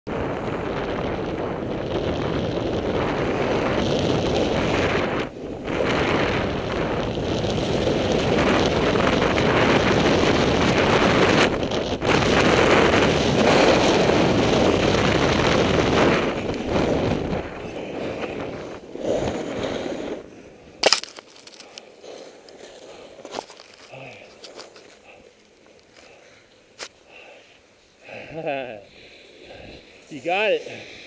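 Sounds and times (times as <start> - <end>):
wind on microphone: 0.1 - 21.8
skis hissing over snow: 12.1 - 31.0.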